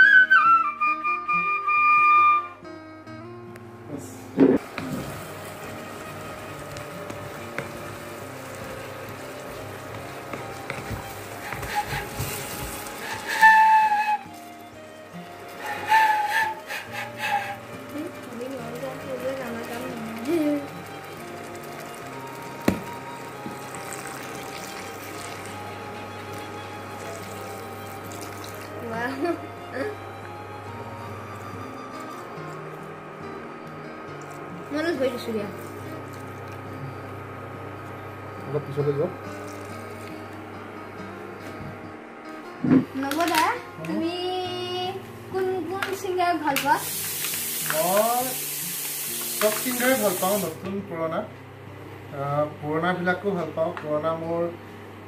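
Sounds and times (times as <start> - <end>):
soft background music: 0.0 - 55.0
wooden spatula stirring: 4.6 - 14.3, 15.5 - 25.6
chicken sizzling in a frying pan: 4.6 - 29.9, 46.1 - 50.6
bamboo flute note: 13.0 - 14.4, 15.6 - 17.7
milk pouring into curry: 16.5 - 28.8.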